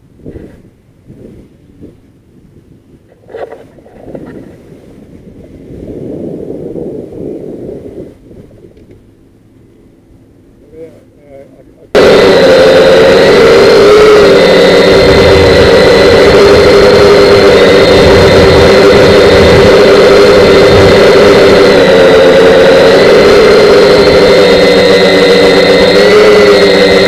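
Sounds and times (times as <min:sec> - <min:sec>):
model airplane engine buzzing: 0:12.0 - 0:27.0.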